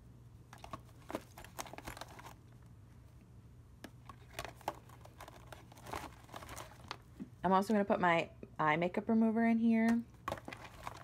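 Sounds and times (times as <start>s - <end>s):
plastic pouches crinkling: 0.5s - 2.5s, 4.0s - 7.2s, 10.1s - 11.0s.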